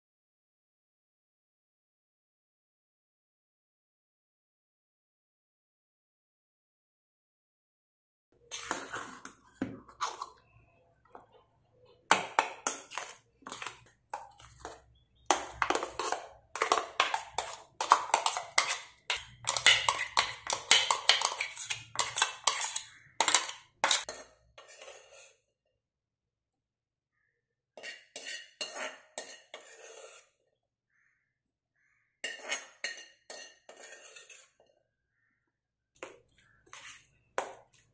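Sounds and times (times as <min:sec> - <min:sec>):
spoon scraping steel jar: 0:08.4 - 0:10.6, 0:12.3 - 0:25.4, 0:27.8 - 0:30.4, 0:32.2 - 0:34.7, 0:36.4 - 0:37.9.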